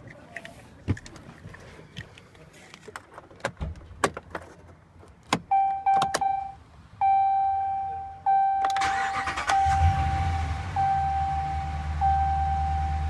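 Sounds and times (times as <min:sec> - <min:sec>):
dashboard warning chime: 0:05.5 - 0:13.0
engine starter cranking: 0:08.8 - 0:10.0.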